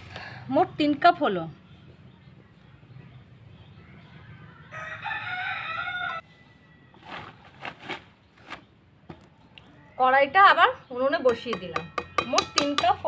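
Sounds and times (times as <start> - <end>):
rooster crowing: 4.5 - 7.0.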